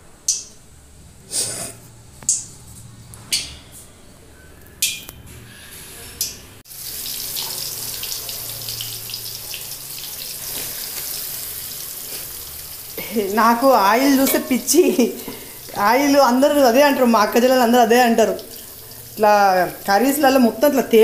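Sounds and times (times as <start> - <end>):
chicken sizzling in hot oil: 6.7 - 20.8.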